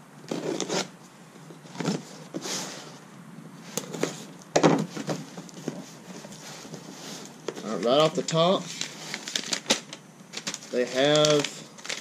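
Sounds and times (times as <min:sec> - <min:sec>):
knife cutting packing tape: 0:00.3 - 0:00.9.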